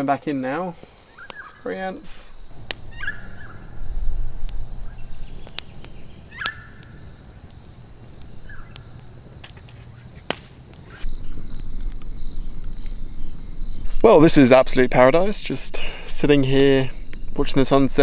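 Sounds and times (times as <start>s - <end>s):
insects chorus: 0.0s - 18.0s
short chirping calls: 1.1s - 1.7s, 2.8s - 7.1s
low rumble: 2.3s - 9.4s.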